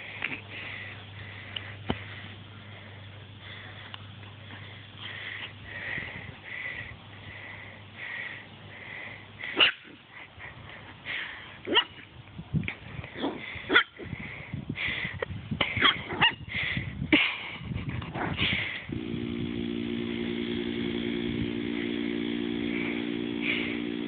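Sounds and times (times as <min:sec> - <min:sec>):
small engine droning: 0:18.8 - 0:24.0.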